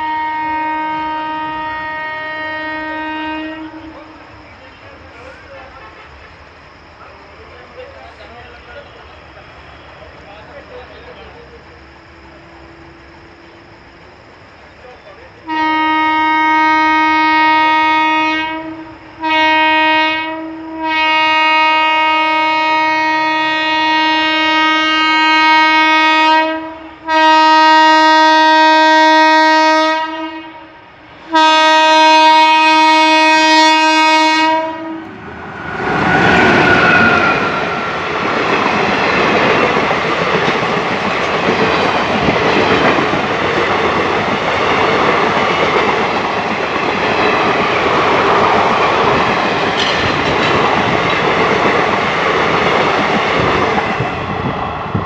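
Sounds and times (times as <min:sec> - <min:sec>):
locomotive horn blasts: 0:00.0 - 0:04.1, 0:15.4 - 0:35.2
train wheels rolling on rails: 0:03.5 - 0:15.5, 0:33.2 - 0:55.0.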